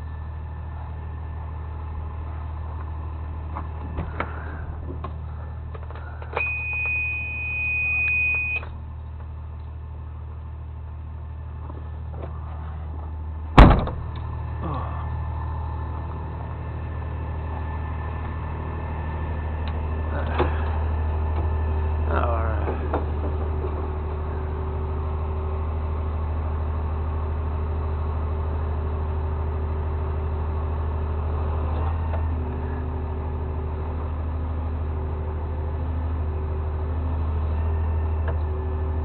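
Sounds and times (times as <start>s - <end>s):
truck engine idling: 0.0s - 39.0s
loud clunk: 13.6s - 14.2s.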